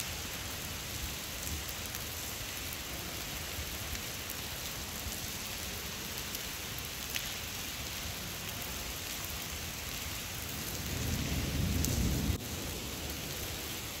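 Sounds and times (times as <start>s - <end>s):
steady rain falling: 0.0s - 14.0s
low rumble of thunder: 10.5s - 14.0s.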